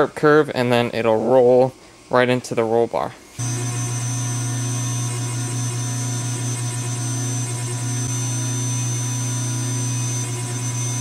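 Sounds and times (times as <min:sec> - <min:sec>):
hydraulic pump motor hum: 0:03.3 - 0:11.0.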